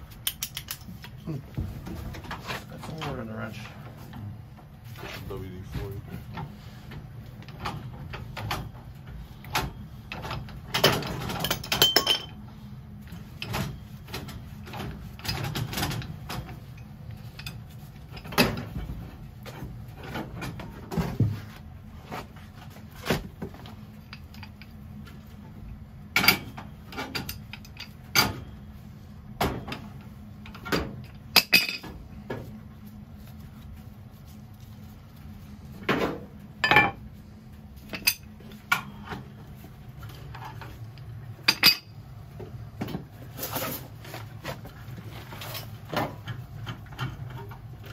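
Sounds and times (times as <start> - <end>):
low steady hum: 0.0 - 47.9
metal tools clanking on iron pipe: 10.8 - 12.4.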